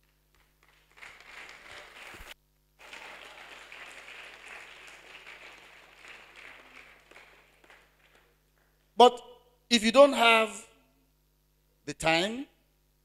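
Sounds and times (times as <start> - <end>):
audience applauding: 0.3 - 8.9.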